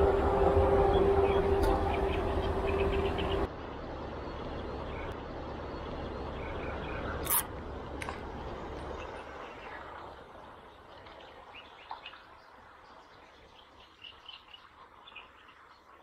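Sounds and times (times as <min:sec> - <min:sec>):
drone with held tone and rumble: 0:00.0 - 0:03.5.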